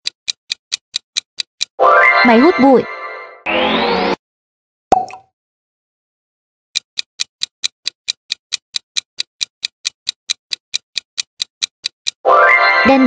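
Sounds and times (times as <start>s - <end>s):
clock ticking sound effect: 0.0s - 2.7s, 6.8s - 13.0s.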